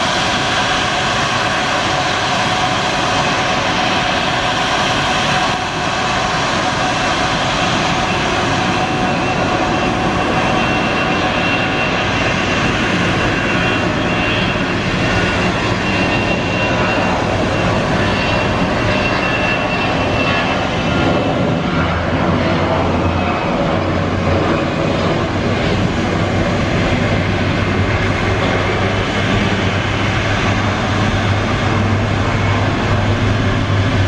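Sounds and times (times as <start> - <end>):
jet turbines whining: 0.0 - 34.0.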